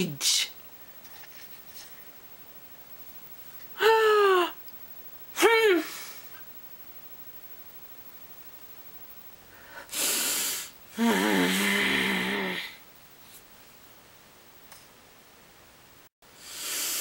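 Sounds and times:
person groaning: 0:03.8 - 0:04.6, 0:10.9 - 0:12.8.

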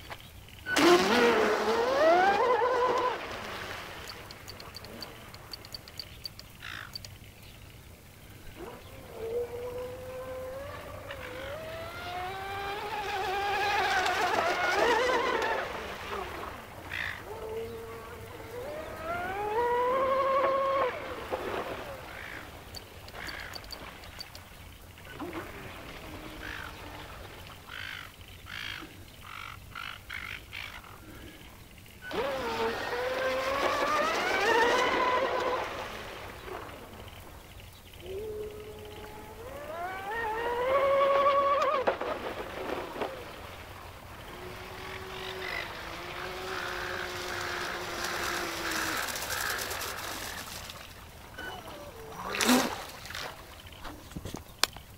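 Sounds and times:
water birds calling: 0:00.0 - 0:54.9
model boat motor whining: 0:00.7 - 0:03.3, 0:08.6 - 0:21.6, 0:32.0 - 0:37.0, 0:38.1 - 0:53.4.

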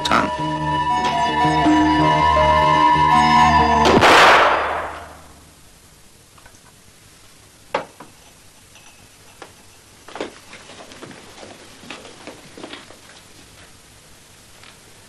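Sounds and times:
soundtrack music: 0:00.0 - 0:05.1
loud ringing crash: 0:03.8 - 0:05.3
glass bottles clinking: 0:08.0 - 0:09.8.

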